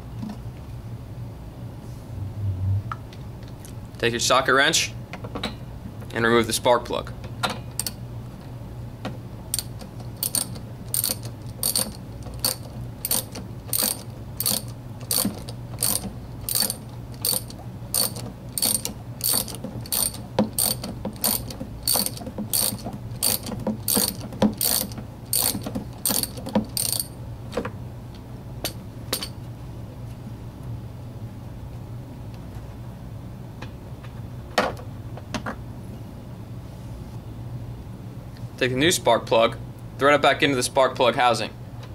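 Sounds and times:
ratchet wrench clicking: 0:09.5 - 0:27.1.

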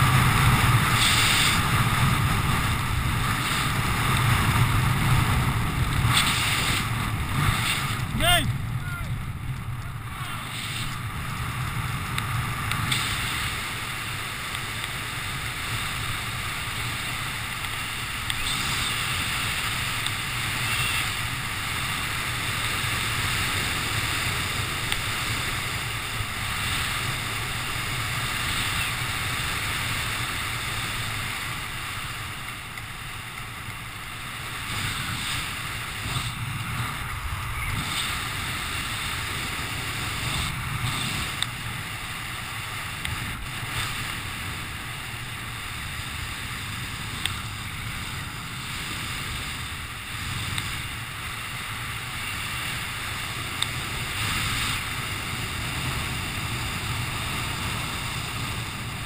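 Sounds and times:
wind rushing over microphone: 0:00.0 - 0:59.0.

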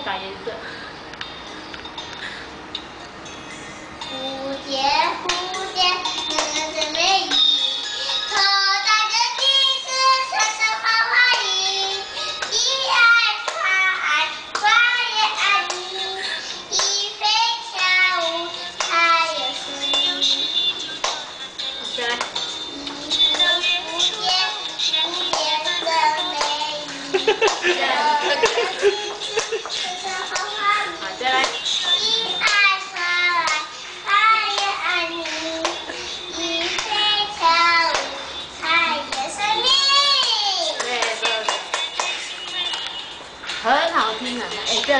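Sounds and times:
little girl singing: 0:04.0 - 0:20.7, 0:22.7 - 0:40.8.

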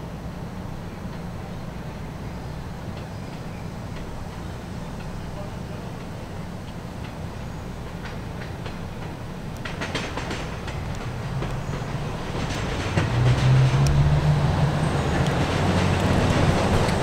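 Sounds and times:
subway train rumble and hum: 0:00.0 - 0:17.0.

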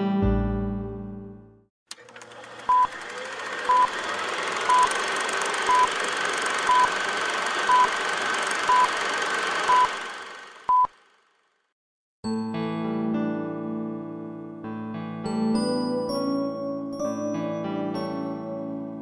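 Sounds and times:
short high beeps: 0:05.7 - 0:05.9.

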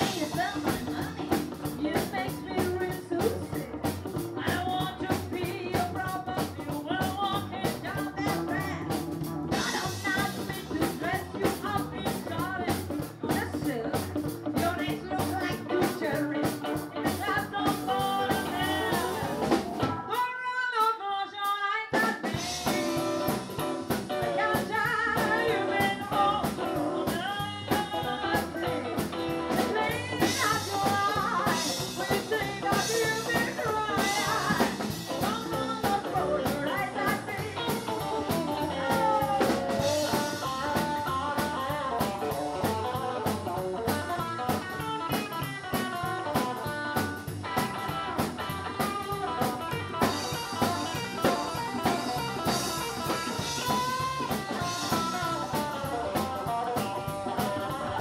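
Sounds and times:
upright double bass: 0:00.0 - 0:20.0, 0:22.4 - 0:44.7
electric guitar: 0:00.0 - 0:20.3, 0:22.0 - 0:58.0
drum kit: 0:00.0 - 0:20.4, 0:21.4 - 0:58.0
woman singing: 0:00.0 - 0:58.0.

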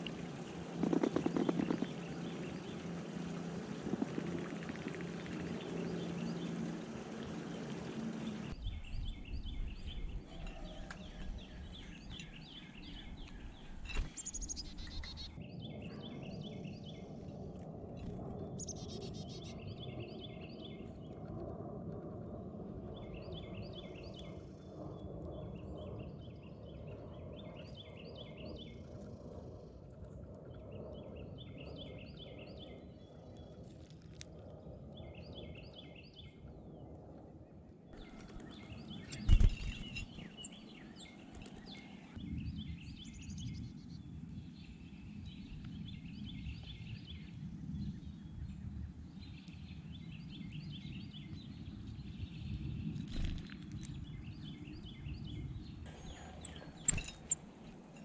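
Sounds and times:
low outdoor rumble: 0:00.0 - 0:16.1
songbird chirping: 0:37.9 - 0:58.0.

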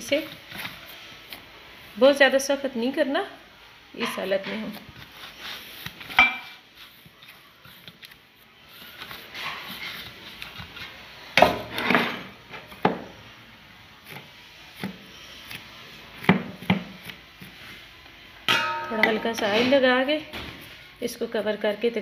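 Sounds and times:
dough rubbing and patting: 0:00.0 - 0:03.1, 0:04.1 - 0:18.0.

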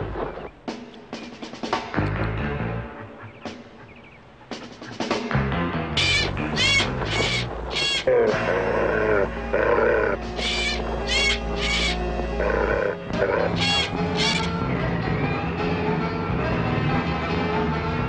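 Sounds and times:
orchestral background music: 0:00.7 - 0:18.0
crow cawing: 0:06.0 - 0:14.6.

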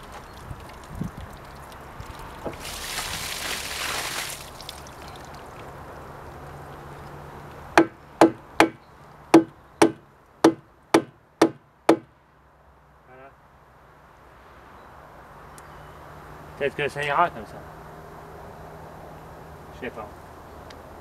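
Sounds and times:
hatchet knocking wooden plug: 0:07.8 - 0:08.8, 0:09.4 - 0:12.1.

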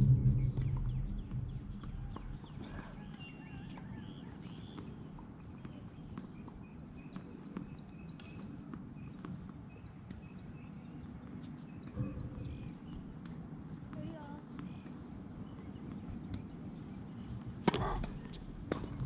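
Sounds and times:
wind rumbling on microphone: 0:00.0 - 0:04.0, 0:12.0 - 0:13.2.

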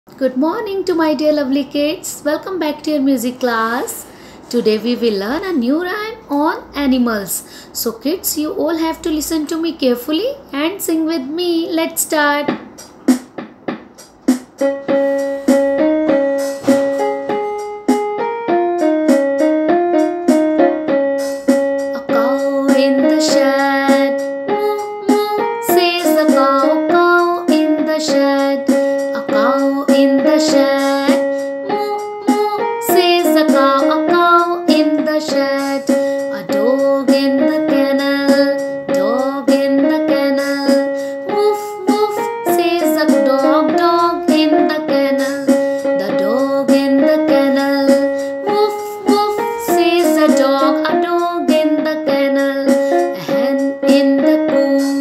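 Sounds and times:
instrumental backing music: 0:08.2 - 0:55.0
woman singing: 0:21.8 - 0:55.0.

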